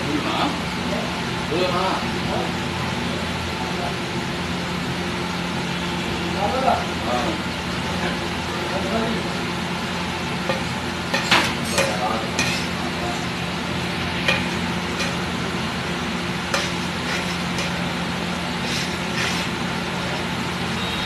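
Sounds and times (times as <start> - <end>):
food sizzling: 9.2 - 20.5
metal spatula scraping griddle: 10.5 - 12.8, 14.2 - 15.4, 16.5 - 17.9, 18.6 - 20.2.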